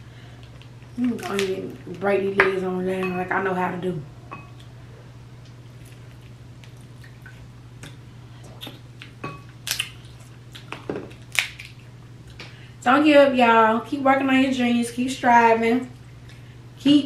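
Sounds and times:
steady low hum: 0.0s - 17.0s
wet chewing and smacking: 5.4s - 12.4s
crab shell cracking: 9.0s - 11.9s.

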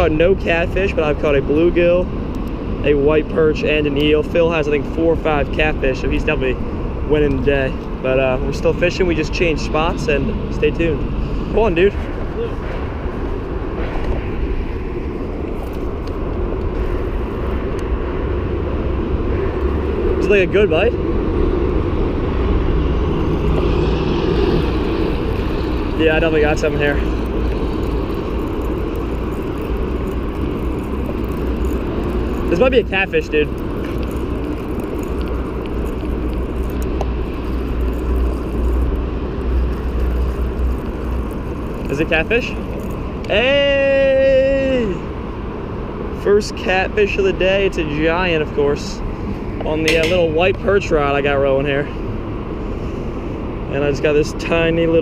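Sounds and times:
city traffic rumble: 0.0s - 55.0s
fishing reel ticking: 24.5s - 43.4s.

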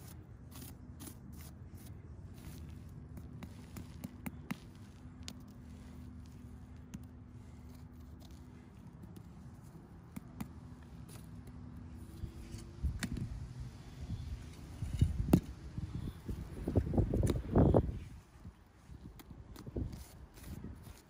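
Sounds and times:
rake scraping on rocky dirt: 0.0s - 13.2s, 14.4s - 21.0s
wind rumbling on microphone: 12.1s - 21.0s.

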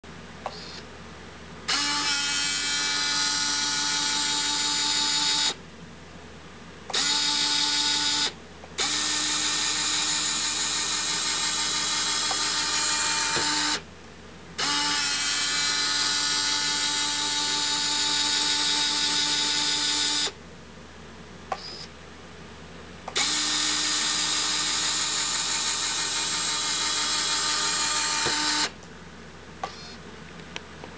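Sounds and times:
small electric motor whine: 0.5s - 0.8s, 1.7s - 5.6s, 6.9s - 13.8s, 14.6s - 20.4s, 23.2s - 28.8s.

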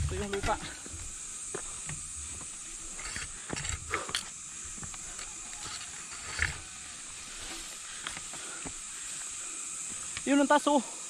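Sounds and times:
bike clicks and rattles: 0.0s - 6.7s, 7.4s - 10.4s
footsteps on dirt trail: 0.0s - 10.4s
steady high hiss: 0.0s - 11.0s.

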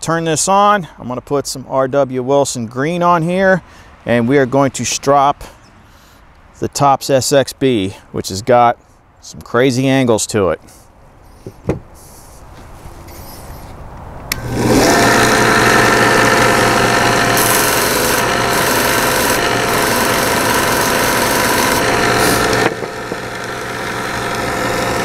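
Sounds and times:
scratchy hiss of compound on belt: 10.7s - 13.8s
belt sander motor hum and whine: 14.3s - 25.0s
belt sander switching on: 14.3s - 25.0s.

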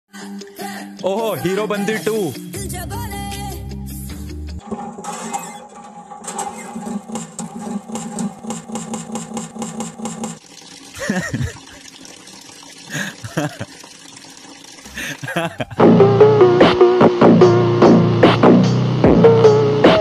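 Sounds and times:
rapid mechanical clatter: 4.6s - 10.4s
man laughing: 11.0s - 11.8s, 12.9s - 13.8s, 14.9s - 15.8s.

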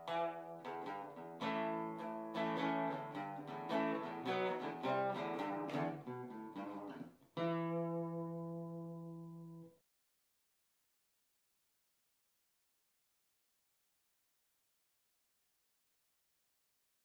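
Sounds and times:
acoustic guitar music: 0.0s - 9.7s.

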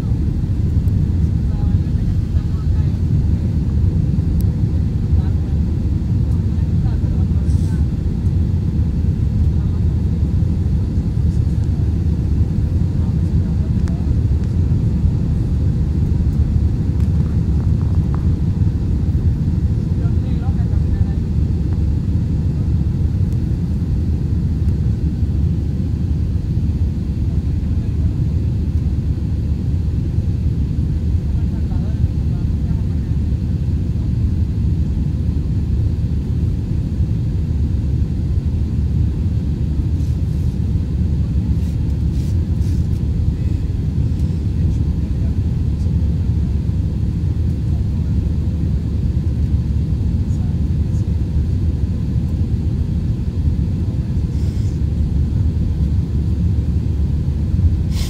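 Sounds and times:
airliner cabin roar: 0.0s - 58.0s.

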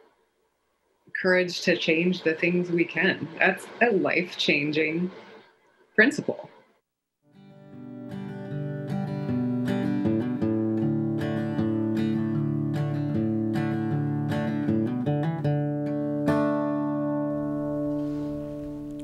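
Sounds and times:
acoustic guitar music: 7.3s - 19.0s.

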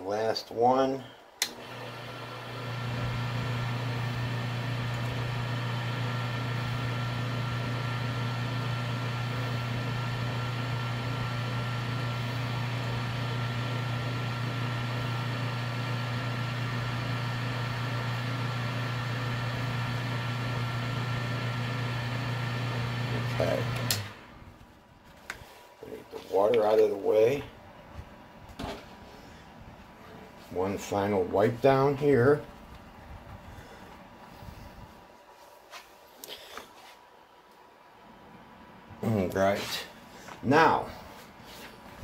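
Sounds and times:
lathe motor humming and whining: 1.4s - 24.4s.

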